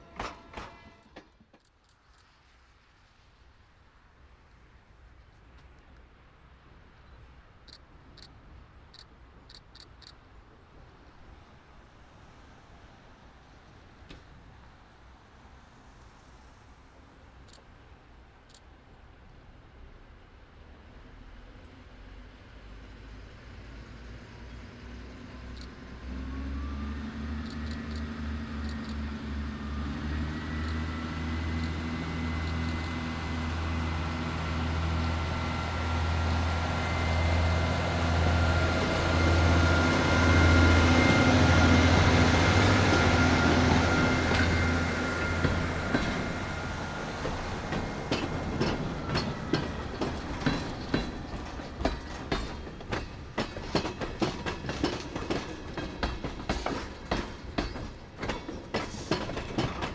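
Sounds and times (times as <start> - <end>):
train wheels clicking over rail joints: 0.0 - 2.3, 8.9 - 10.2, 27.4 - 29.1, 30.5 - 36.5, 38.7 - 59.9
diesel locomotive engine drone: 0.0 - 59.9.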